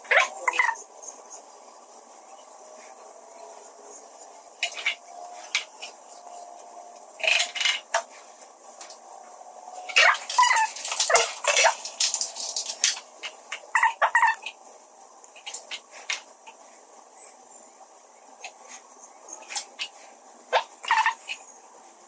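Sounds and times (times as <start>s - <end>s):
plastic bottle crackling: 10.0s - 13.1s.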